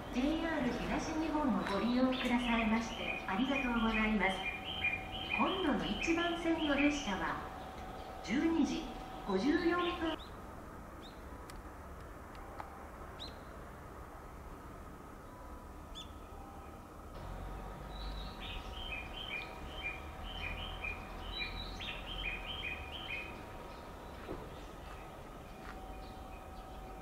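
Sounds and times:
low hum and rumble: 0.0 - 10.3.

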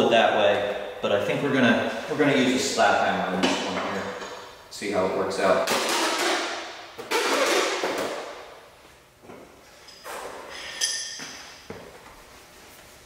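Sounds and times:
metal tools clattering: 9.9 - 11.5.

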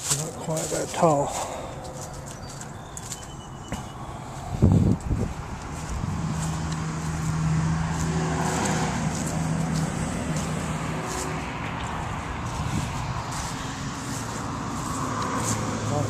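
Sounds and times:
vehicle engine passing: 0.2 - 16.0.

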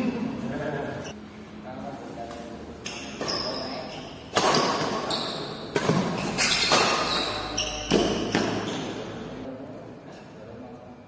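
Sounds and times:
badminton rackets hitting shuttlecock: 2.8 - 9.1.

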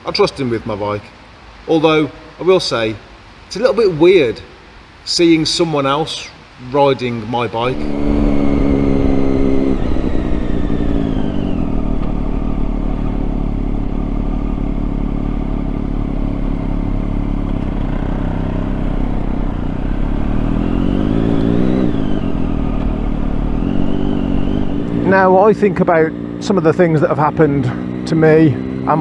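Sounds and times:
motorcycle engine revving: 7.6 - 29.0.

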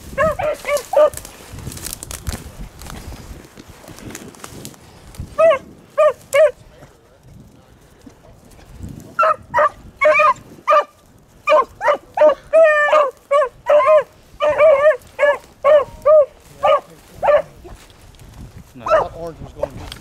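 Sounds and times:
dogs barking: 0.1 - 1.2, 5.4 - 6.6, 9.2 - 17.8, 18.8 - 19.2
dog baying: 11.5 - 17.6.

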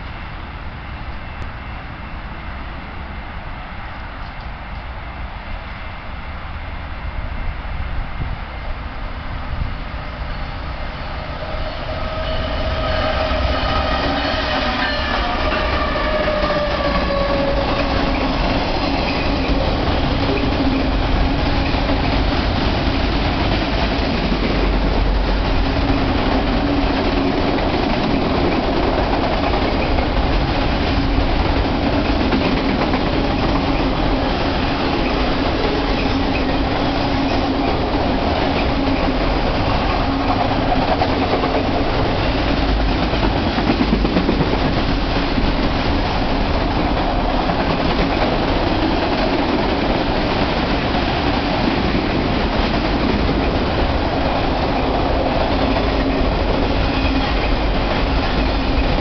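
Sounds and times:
train wheels rumbling and clattering: 7.9 - 59.0
train horn: 10.4 - 18.4.

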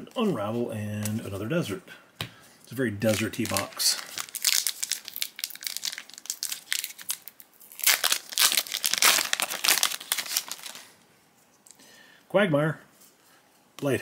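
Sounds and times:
foil wrapper crinkling: 3.0 - 11.0.

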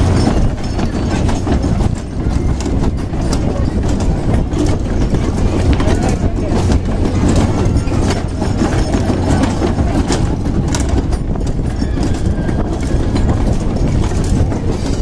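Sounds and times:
carousel ride rumbling and clattering: 0.0 - 15.0.

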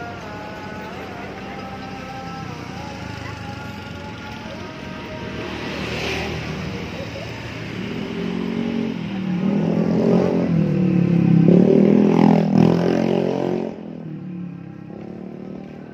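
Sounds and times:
motorcycle engine revving: 5.2 - 15.9.

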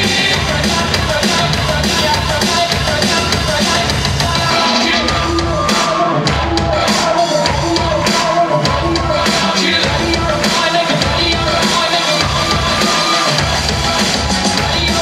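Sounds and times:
driving drum kit: 0.0 - 15.0
loud rock music: 0.0 - 15.0.

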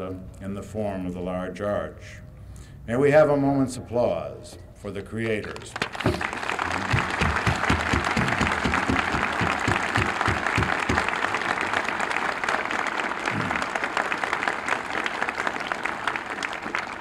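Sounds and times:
audience applauding: 5.6 - 17.0.

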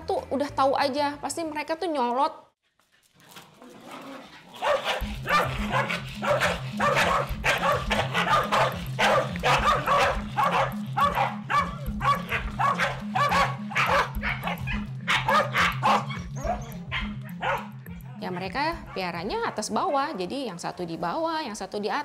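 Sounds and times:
dogs barking: 3.8 - 20.4
music with bass line: 4.8 - 19.8.

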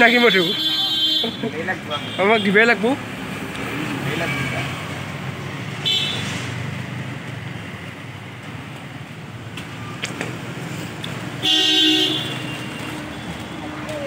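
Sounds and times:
vehicle horn: 0.0 - 2.5, 11.4 - 13.2
cars and motorbikes passing: 0.0 - 14.0.

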